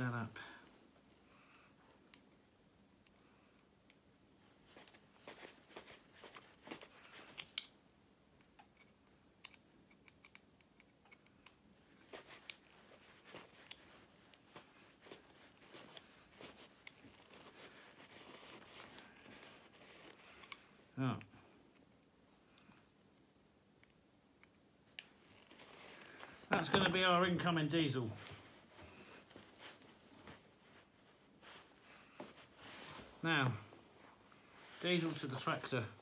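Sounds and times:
handling clicks and scrapes: 8.5s - 20.8s.

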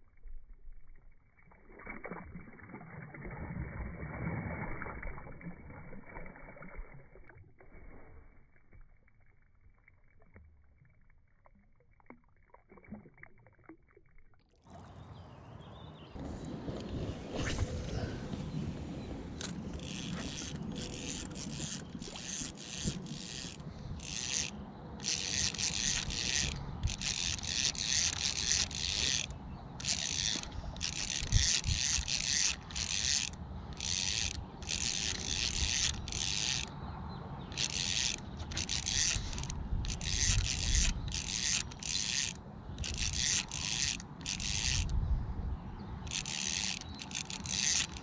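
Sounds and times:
spinning reel gears cranking: 19.4s - 36.7s, 37.5s - 45.0s, 46.1s - 48.0s.

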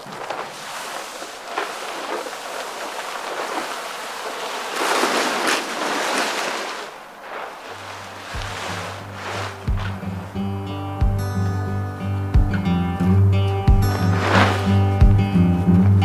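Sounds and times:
plastic tarp rustling: 0.0s - 10.6s, 13.9s - 15.0s.

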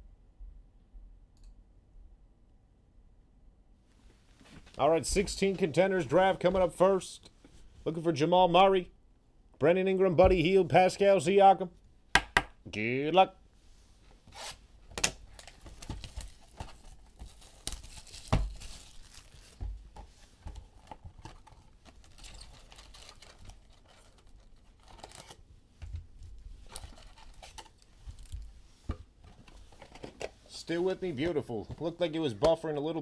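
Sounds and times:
sharp clicks and rustles: 14.9s - 30.4s
plastic and foil wrapping ripping: 15.3s - 19.6s, 21.4s - 25.4s.

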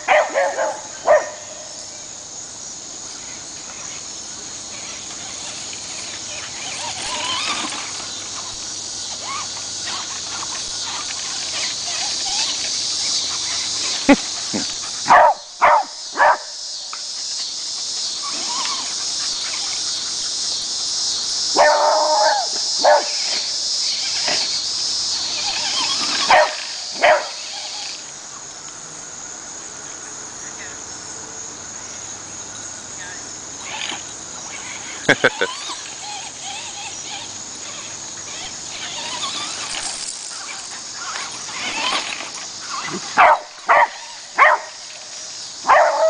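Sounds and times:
dog barking: 0.0s - 1.4s, 15.0s - 16.5s, 21.6s - 23.2s, 26.3s - 27.4s, 43.2s - 44.7s, 45.6s - 46.0s
crickets chirping: 0.0s - 46.0s.

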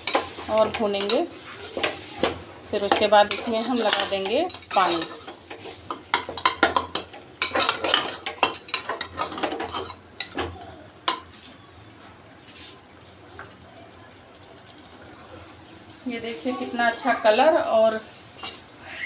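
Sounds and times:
masala sizzling: 0.0s - 19.0s
metal ladle scraping a pot: 3.3s - 6.6s.

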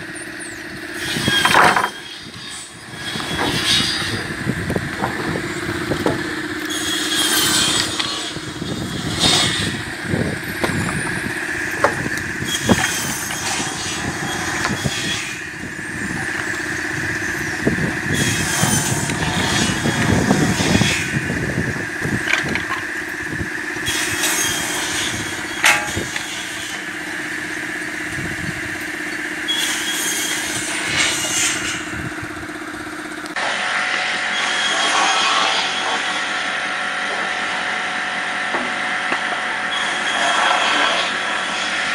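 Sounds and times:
cross-cut saw humming: 0.0s - 41.9s
harsh saw cutting burst: 5.3s - 10.3s, 23.2s - 28.1s, 29.0s - 32.2s
wood pieces knocking: 25.6s - 26.1s.

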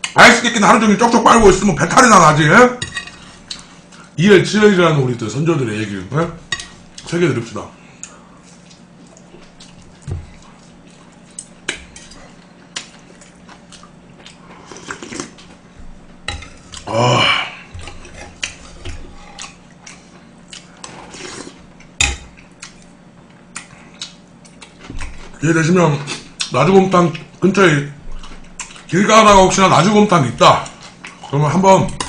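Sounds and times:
chewing: 8.0s - 15.6s, 17.7s - 25.4s, 28.1s - 29.0s, 30.6s - 31.4s.

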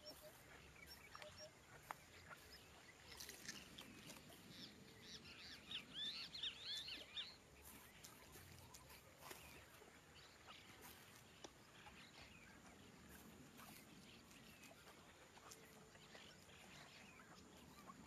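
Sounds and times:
young stork squeaky begging calls: 0.0s - 3.6s.

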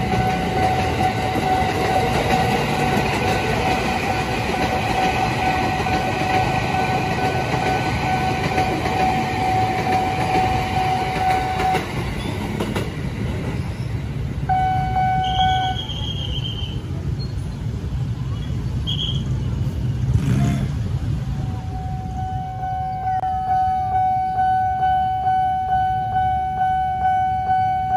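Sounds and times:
steady high tone: 0.0s - 12.2s, 21.3s - 27.9s
electric train running past: 0.0s - 18.2s, 19.4s - 27.9s
train horn: 4.9s - 11.8s, 14.5s - 15.9s.

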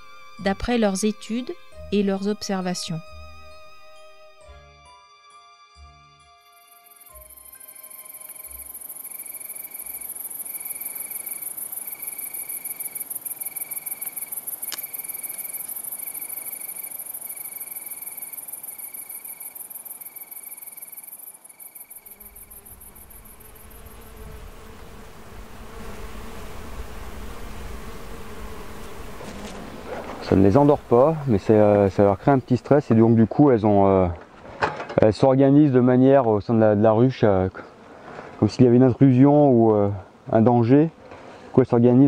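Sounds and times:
insects trilling: 6.6s - 33.6s
bees buzzing in flight: 6.7s - 32.6s.

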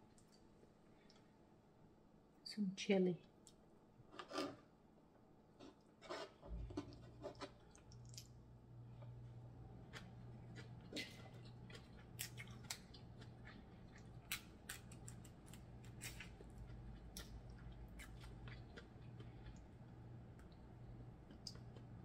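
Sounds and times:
steady low hum: 4.7s - 22.0s
faint chewing: 5.6s - 9.2s, 9.8s - 22.0s
crab shell cracking and snapping: 12.0s - 13.1s, 14.0s - 16.6s.

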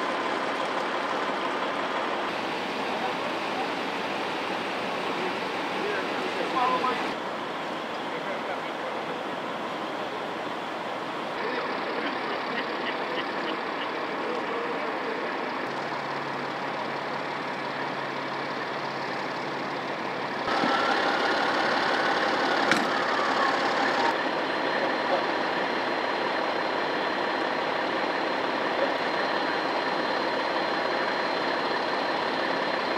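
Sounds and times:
vehicle engines idling: 0.0s - 32.9s.

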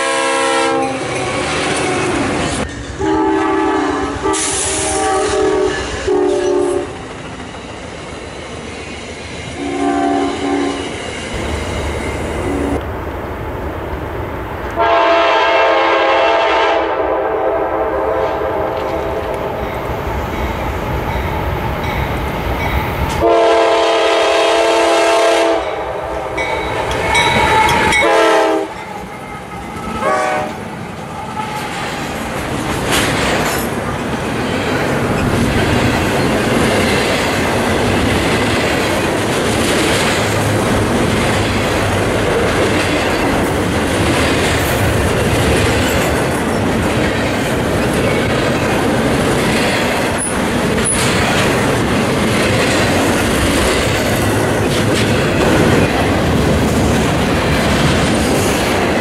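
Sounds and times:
locomotive air horn blasts: 0.0s - 1.1s, 3.0s - 7.0s, 9.6s - 10.8s, 14.8s - 19.2s, 23.2s - 26.5s, 27.6s - 28.8s, 29.9s - 30.6s
passing train rumble: 0.0s - 59.0s.

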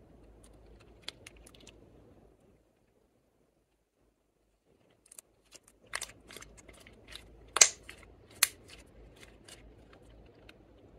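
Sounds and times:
slime sticky clicks: 7.6s - 8.6s.

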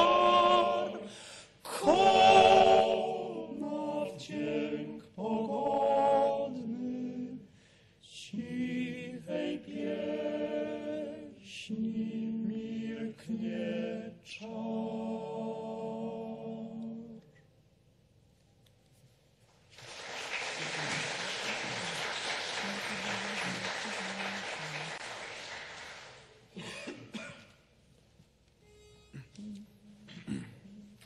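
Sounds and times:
male choir singing a cappella: 0.0s - 17.2s.

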